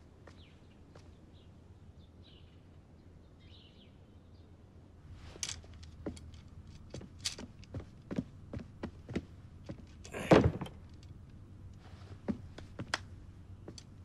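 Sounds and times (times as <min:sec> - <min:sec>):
outdoor background hum: 0:00.0 - 0:14.0
wooden knocks and clatters: 0:05.4 - 0:11.1.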